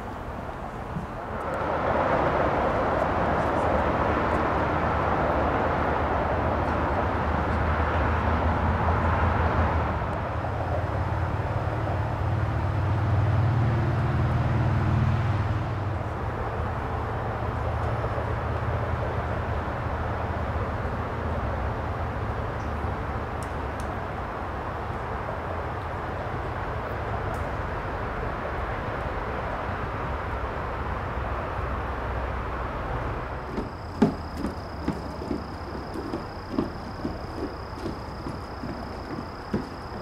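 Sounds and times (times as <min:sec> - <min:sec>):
engine passing by: 0:32.3 - 0:40.0.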